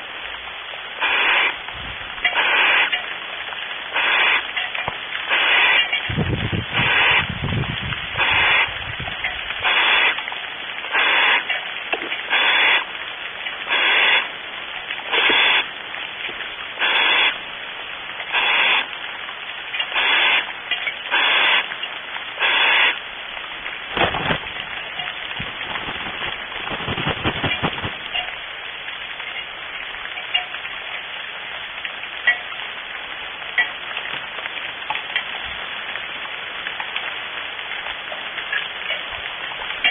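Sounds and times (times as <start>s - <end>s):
steady background hiss: 0.0s - 39.9s
barn owl rasping hisses: 1.0s - 1.6s, 2.4s - 2.9s, 3.9s - 4.4s, 5.3s - 5.8s, 6.8s - 7.3s, 8.2s - 8.7s, 9.6s - 10.2s, 10.9s - 11.4s, 12.3s - 12.9s, 13.7s - 14.3s, 15.1s - 15.7s, 16.8s - 17.4s, 18.3s - 18.9s, 19.9s - 20.5s, 21.1s - 21.7s, 22.4s - 23.0s.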